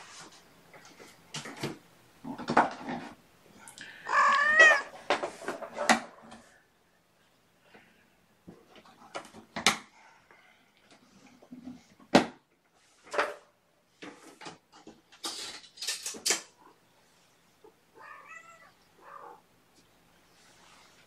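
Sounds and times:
cat meowing: 4.0s - 4.9s, 18.0s - 19.4s.

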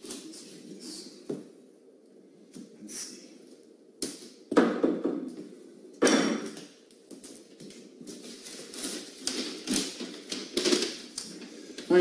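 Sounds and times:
crackly rustling: 6.6s - 12.0s
cardboard parcel and paper handled: 7.2s - 12.0s.

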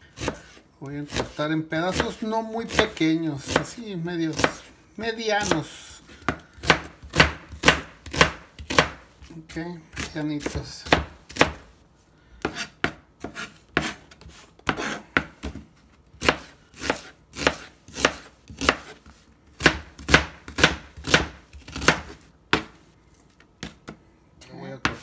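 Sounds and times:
knife chopping on cutting mat: 0.1s - 4.7s, 5.4s - 11.7s, 12.4s - 24.0s, 24.8s - 25.0s.

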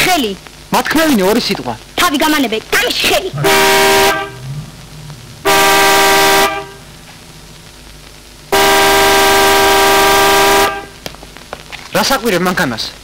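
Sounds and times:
truck horn blasts: 3.4s - 4.6s, 5.4s - 6.9s, 8.5s - 11.0s.

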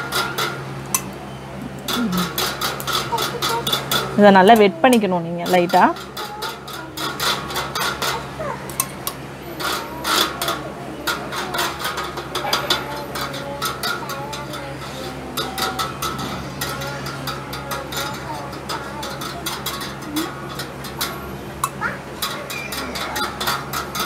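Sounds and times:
metal spoon scraping grill grate: 0.0s - 1.1s, 1.7s - 24.0s.

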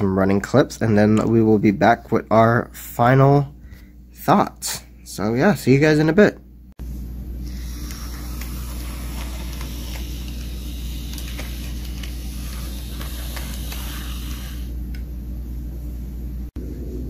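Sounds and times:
electric motor humming: 7.4s - 14.8s.

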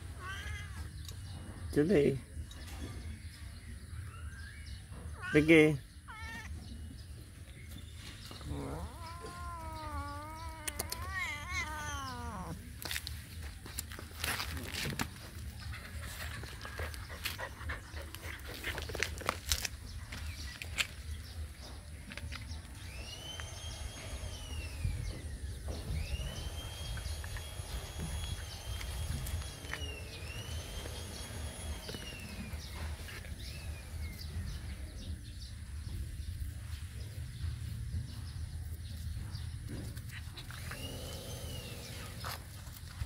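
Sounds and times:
cat meowing: 0.0s - 0.9s, 6.1s - 6.6s, 8.4s - 12.7s
puppy whining: 8.3s - 12.7s.

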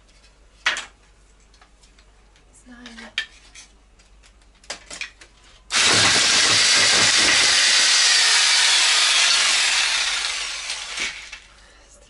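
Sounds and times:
electric jigsaw cutting wood: 5.7s - 11.5s.

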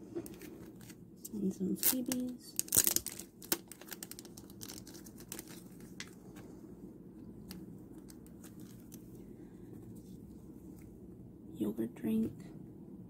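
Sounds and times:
plastic sleeves and paper rustling: 0.1s - 6.6s, 7.4s - 10.9s.

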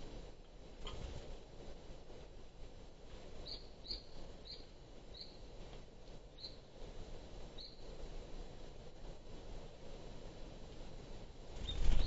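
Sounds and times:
small bird chip calls: 3.4s - 5.4s, 6.4s - 6.7s, 7.6s - 7.9s.

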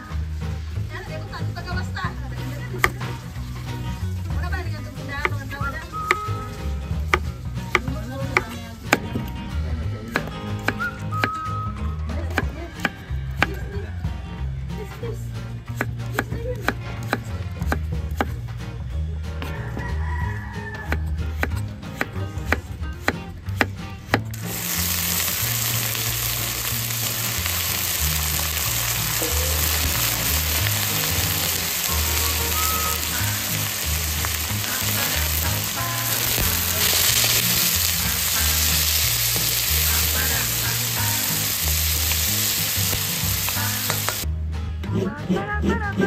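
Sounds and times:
background music with bass line: 0.0s - 46.0s
food sizzling in hot oil: 2.3s - 9.0s, 24.3s - 44.3s.

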